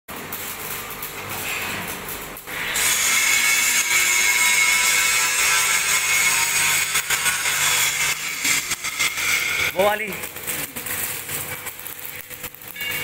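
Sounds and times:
angle grinder on steel: 0:02.5 - 0:12.2.

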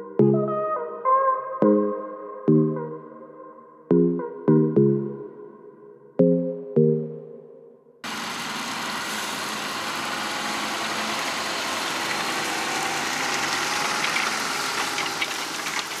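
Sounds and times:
tractor diesel engine under load: 0:08.0 - 0:16.0.

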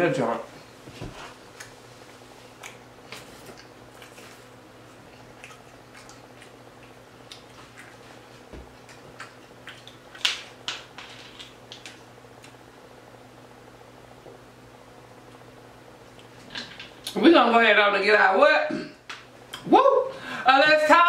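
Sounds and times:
low steady hum: 0:00.0 - 0:21.0
person chewing food: 0:01.2 - 0:10.7.

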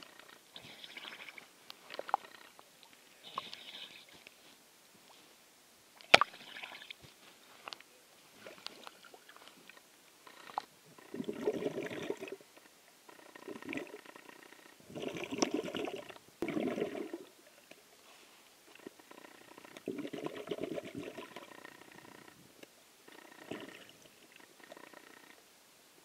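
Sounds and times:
water sloshing and gurgling: 0:10.4 - 0:12.4, 0:14.9 - 0:17.3.

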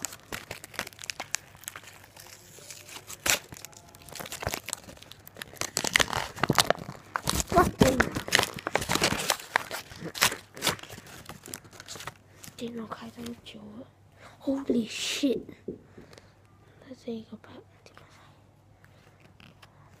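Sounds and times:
paper crinkling and rustling: 0:00.0 - 0:13.4.

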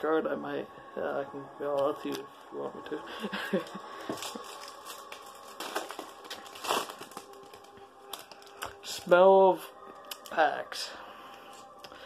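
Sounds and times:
foil wrapper crinkling and tearing: 0:03.6 - 0:08.8.

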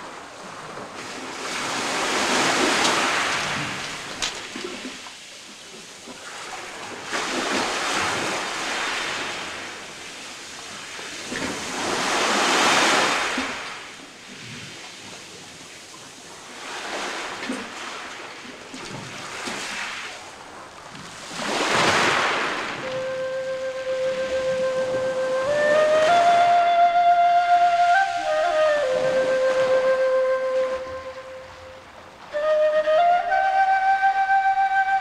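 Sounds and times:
waves washing onto pebble beach: 0:00.0 - 0:26.5.

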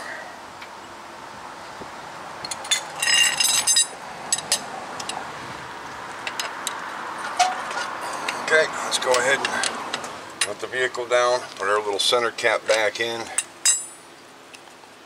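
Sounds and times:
metallic clinks of lug nuts: 0:02.5 - 0:05.2, 0:06.2 - 0:08.5, 0:12.7 - 0:14.0.

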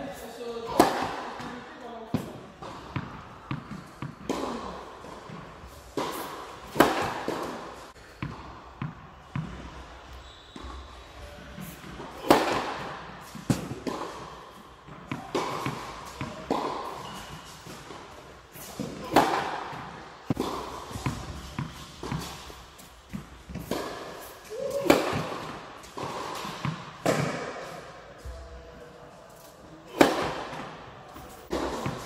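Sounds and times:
racket striking tennis ball: 0:00.6 - 0:09.8, 0:11.6 - 0:27.8, 0:29.9 - 0:30.8, 0:31.4 - 0:32.0
tennis ball bouncing on court: 0:00.7 - 0:09.8, 0:11.6 - 0:18.0, 0:18.6 - 0:22.5, 0:23.1 - 0:27.5, 0:31.5 - 0:32.0.

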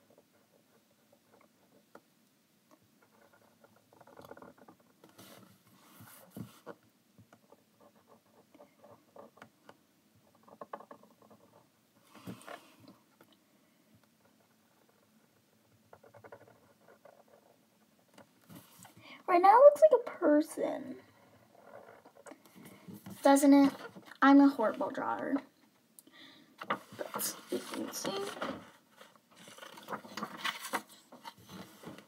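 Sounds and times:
paper rustles: 0:26.6 - 0:32.0.

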